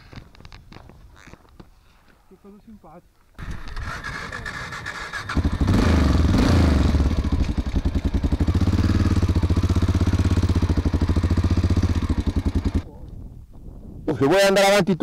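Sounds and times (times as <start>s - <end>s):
motorcycle engine running: 3.4s - 13.0s.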